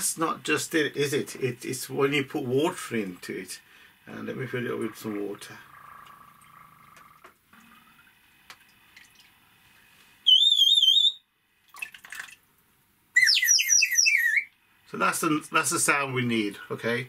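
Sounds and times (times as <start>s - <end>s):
water bird whistle trilling: 10.2s - 11.3s, 13.2s - 14.5s.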